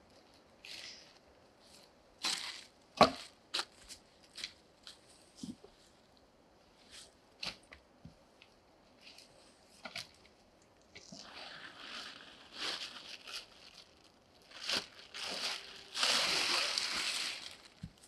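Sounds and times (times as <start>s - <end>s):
footsteps crunching dry leaves: 11.6s - 18.0s.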